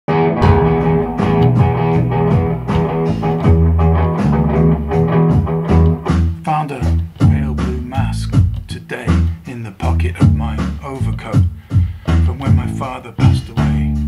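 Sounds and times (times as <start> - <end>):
electric guitar riff: 0.1 - 9.4
loud bass line: 0.1 - 14.0
slow hip-hop drum beat: 0.4 - 14.0.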